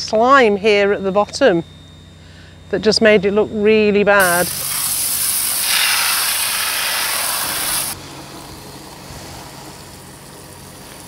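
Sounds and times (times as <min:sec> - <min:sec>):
hose nozzle spraying water: 0:04.2 - 0:08.0.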